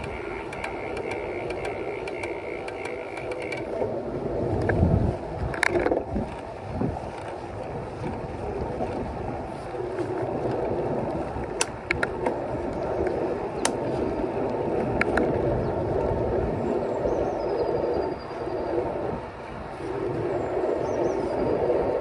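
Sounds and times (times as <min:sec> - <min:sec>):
bike clicks and rattles: 0:00.0 - 0:16.4
bicycle tyre and wind rumble: 0:00.0 - 0:22.0.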